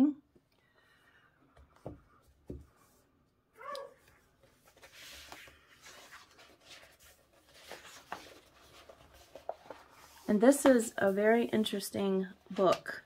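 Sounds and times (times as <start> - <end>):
book pages rustling: 4.0 - 13.0.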